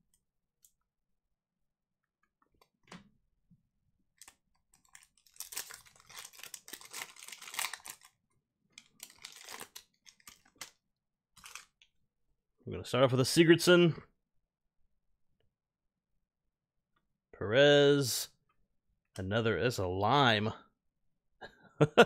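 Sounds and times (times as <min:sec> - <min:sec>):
card pack wrapper crinkling: 0:04.2 - 0:08.2, 0:08.8 - 0:10.8, 0:11.4 - 0:11.8.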